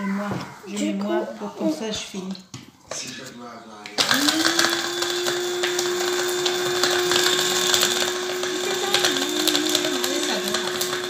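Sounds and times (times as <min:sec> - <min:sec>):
electric grinder motor hum: 0:04.0 - 0:11.0.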